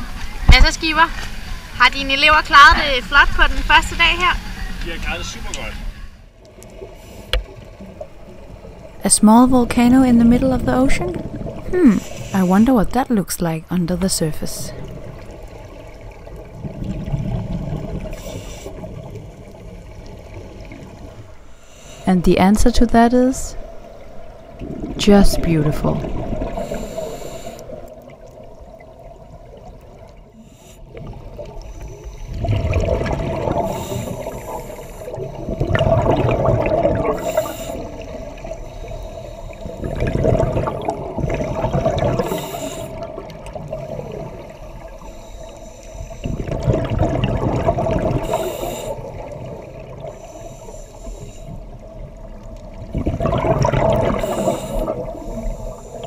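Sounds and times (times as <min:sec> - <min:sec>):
bubbles gurgling: 0:07.7 - 0:12.2, 0:14.6 - 0:21.3, 0:23.6 - 0:30.3, 0:30.9 - 0:44.9, 0:46.2 - 0:50.2, 0:51.7 - 0:56.0
diver breathing through regulator: 0:11.8 - 0:12.6, 0:21.4 - 0:22.2, 0:26.4 - 0:27.9, 0:30.3 - 0:32.7, 0:33.4 - 0:36.0, 0:37.0 - 0:40.0, 0:41.2 - 0:43.2, 0:43.8 - 0:46.7, 0:48.0 - 0:51.9, 0:53.9 - 0:56.0.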